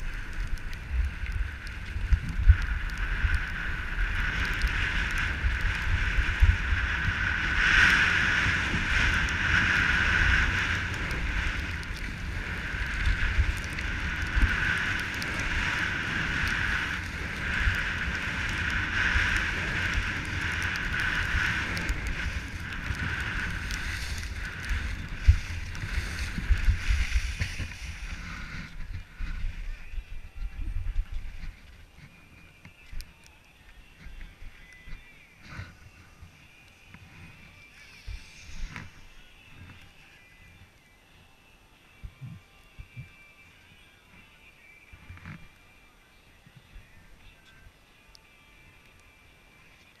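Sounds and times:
skis hissing over snow: 0.0 - 29.9, 36.9 - 39.8
wind buffeting microphone: 0.0 - 32.2.

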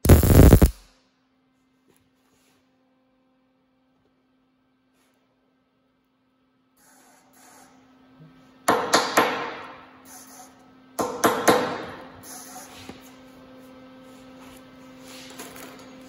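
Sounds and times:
welder arc sputtering and crackling: 0.0 - 0.9
steady hum: 0.0 - 1.0.

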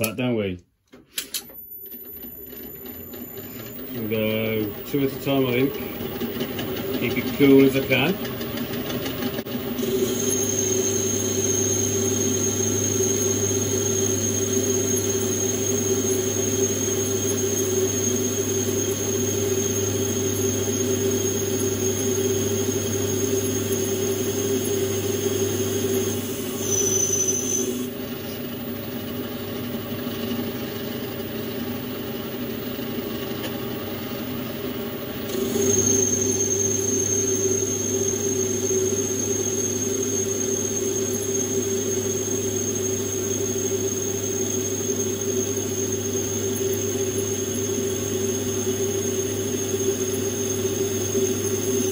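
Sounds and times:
lathe humming: 2.0 - 51.9
cutting tool squealing: 2.2 - 8.3, 9.8 - 24.5, 25.4 - 27.9, 35.3 - 47.0.

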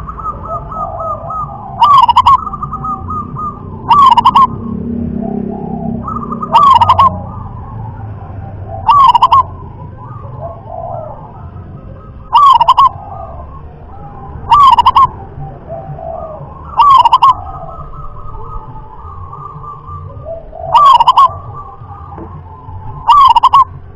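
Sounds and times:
dove cooing: 0.0 - 23.9.

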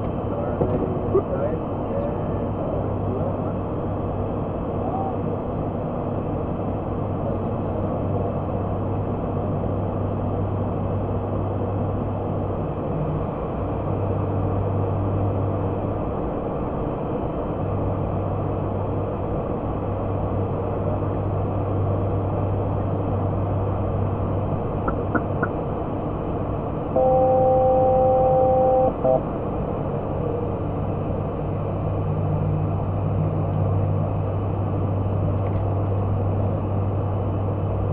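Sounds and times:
turboprop cockpit drone: 0.0 - 37.9
two-note alert tone: 27.0 - 29.2.

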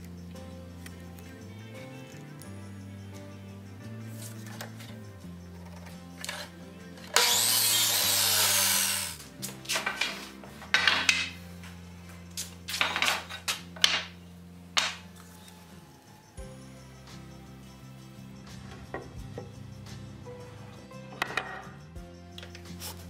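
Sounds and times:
background music: 0.0 - 23.0
power saw cutting wood: 7.1 - 9.2.

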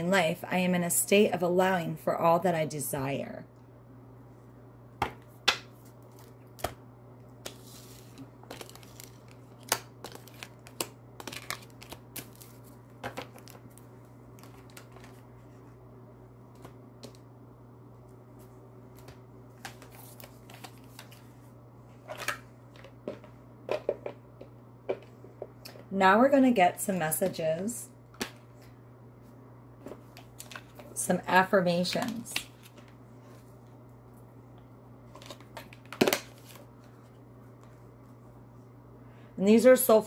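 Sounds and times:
steady low hum: 0.0 - 40.0
cards handled on a tabletop: 7.4 - 15.8, 18.4 - 21.4.

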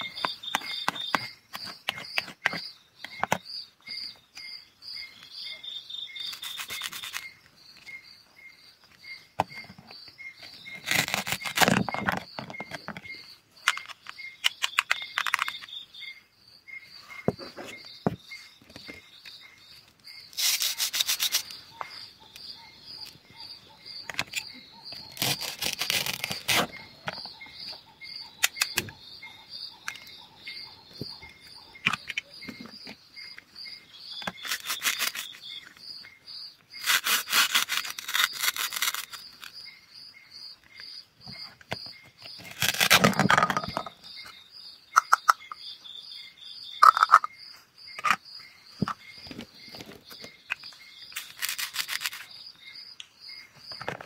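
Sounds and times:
insects chirping: 0.0 - 54.0
plastic clicks: 10.7 - 15.8, 28.4 - 29.0, 41.6 - 44.3, 46.8 - 47.3, 48.0 - 48.2
velcro ripping: 10.8 - 11.8, 20.4 - 21.4, 25.2 - 26.8, 36.8 - 39.5, 51.2 - 52.3.

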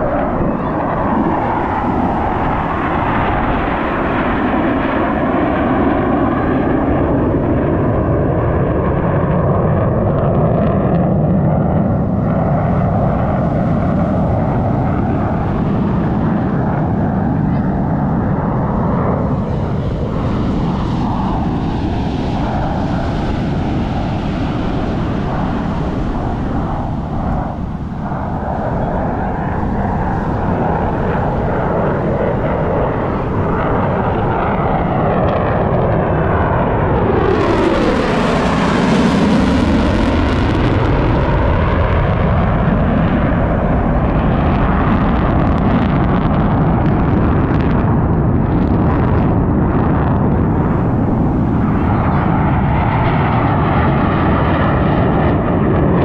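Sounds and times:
fighter jets flying over: 0.0 - 56.0.

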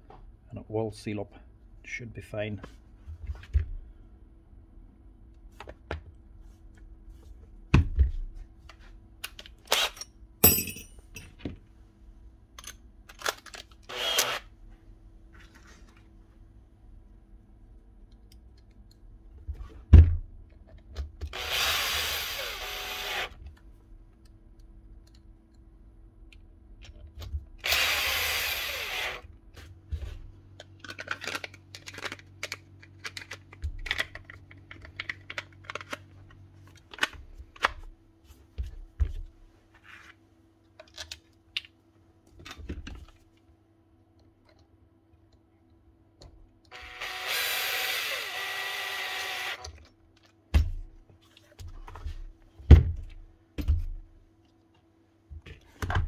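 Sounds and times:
cordless drill running: 13.9 - 14.5, 21.3 - 23.4, 27.6 - 29.2, 46.7 - 49.7.

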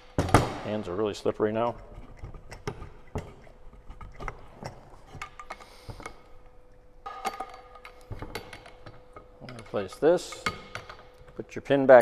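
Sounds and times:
metal parts clicking and clinking: 7.0 - 12.0
metallic ring: 7.0 - 12.0.

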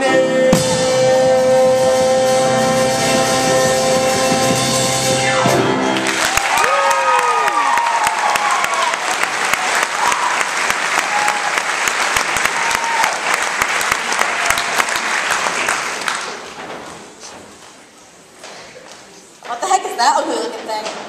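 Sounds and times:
audience applauding: 5.8 - 16.6.

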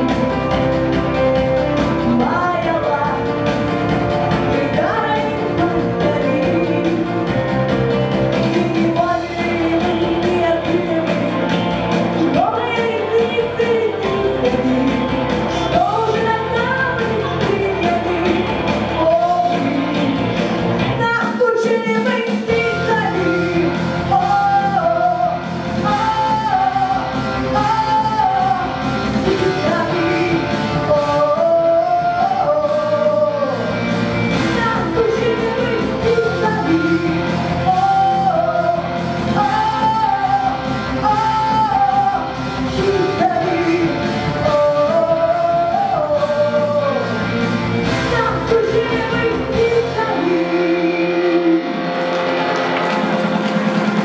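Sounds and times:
recorded rock backing track: 0.0 - 54.0
girl singing into microphone: 34.4 - 47.1, 48.0 - 51.6.

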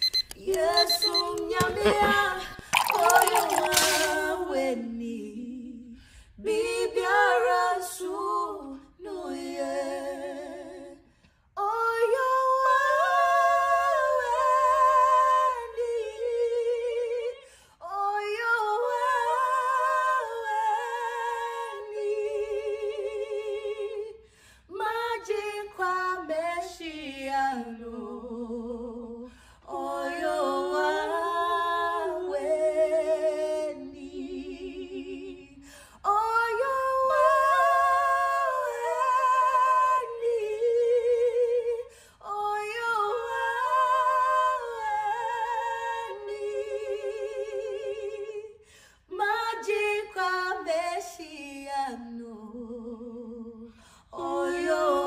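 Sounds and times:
woman singing unaccompanied: 0.4 - 5.9.

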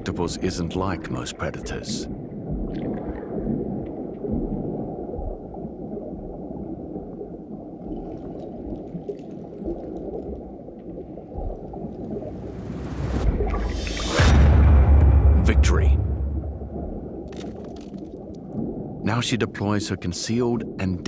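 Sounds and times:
low murky underwater drone: 2.1 - 19.0
rising whoosh: 12.1 - 17.3.

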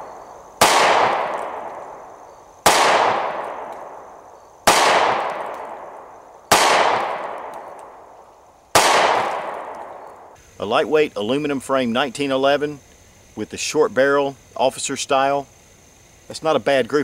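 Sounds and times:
pistol shots: 0.0 - 8.1, 8.7 - 10.4.

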